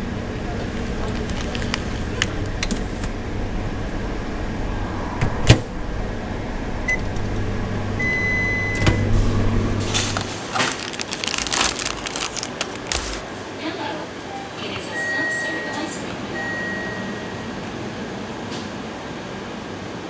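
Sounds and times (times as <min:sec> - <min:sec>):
microwave oven running hum: 0:00.0 - 0:20.0
packaging crinkling: 0:00.8 - 0:03.0, 0:09.8 - 0:13.3
microwave button beeps: 0:08.0 - 0:09.1, 0:14.8 - 0:17.5.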